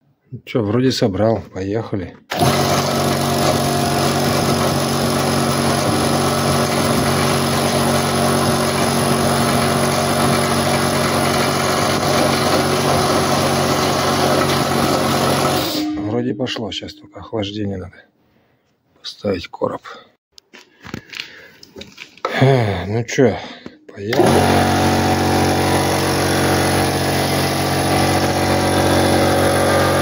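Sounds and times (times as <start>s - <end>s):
air compressor running: 2.3s - 16.0s, 24.1s - 30.0s
cooling fan spinning: 2.3s - 16.0s, 24.1s - 30.0s.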